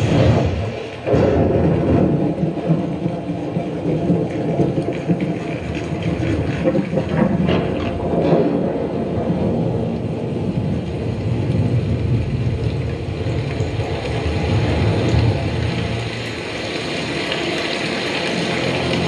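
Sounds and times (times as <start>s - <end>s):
deep bass rumble: 0.0s - 16.4s.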